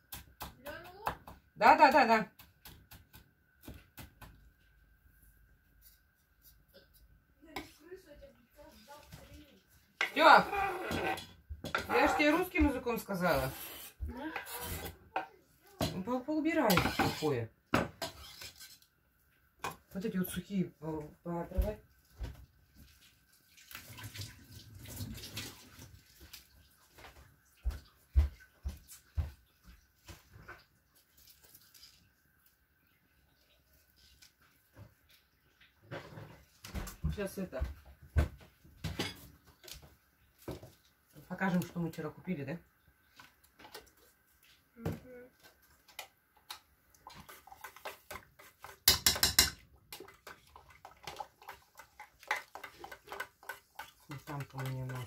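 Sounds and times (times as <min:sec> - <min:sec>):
spoon scraping plastic tub: 0:10.0 - 0:15.0, 0:16.6 - 0:17.4, 0:18.0 - 0:18.9, 0:47.0 - 0:55.0.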